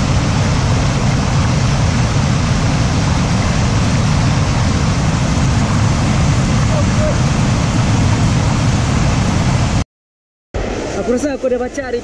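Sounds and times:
river rushing over boulders: 0.0 - 9.8.

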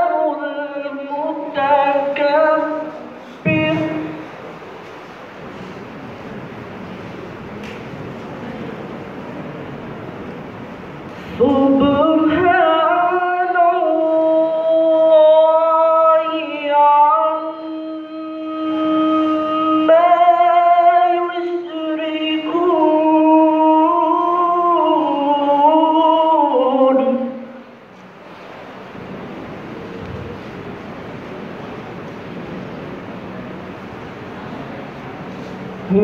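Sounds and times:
young man chanting into a microphone: 0.0 - 4.3, 11.2 - 27.6.

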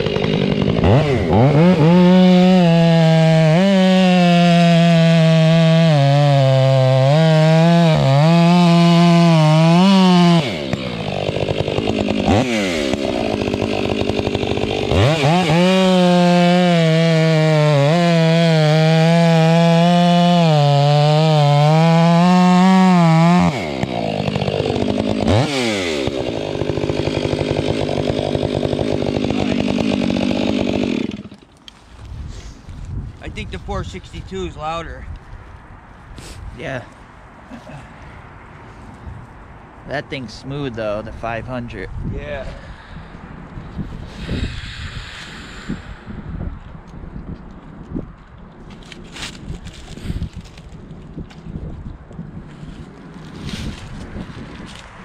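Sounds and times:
chainsaw cutting log: 0.0 - 32.1, 43.8 - 47.0.

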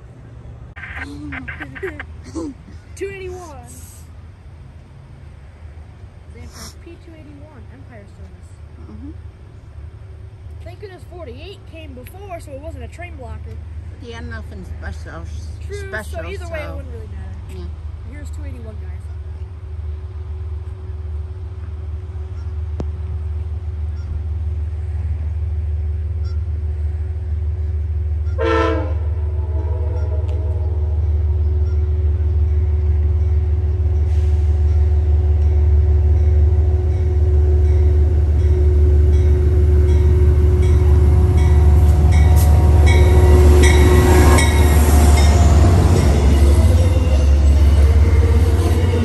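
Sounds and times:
diesel locomotive rumble: 0.0 - 49.0
train horn note: 28.2 - 32.9, 34.0 - 49.0.

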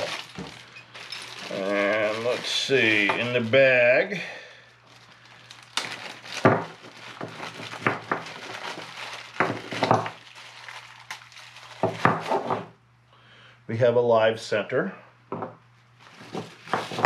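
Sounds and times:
small steel parts clinking: 0.0 - 2.4
plastic bag crinkling: 0.0 - 12.7, 15.8 - 17.0.

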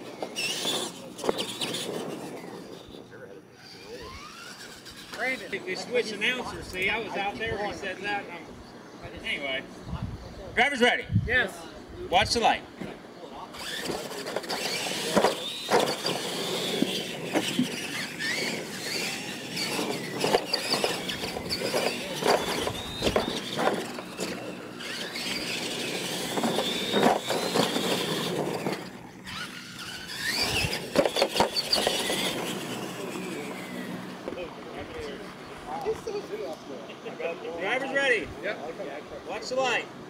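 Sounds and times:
toy trucks clattering on ramps: 0.0 - 3.0, 13.5 - 34.1
electric motor whine: 0.0 - 9.6, 12.3 - 38.8.

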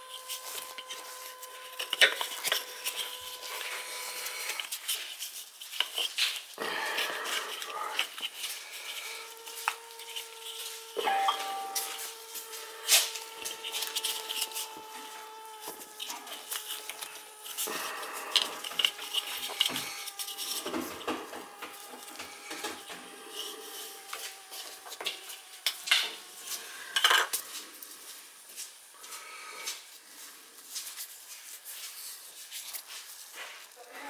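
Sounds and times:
tape crinkling and snapping: 0.0 - 11.0, 11.9 - 27.6.

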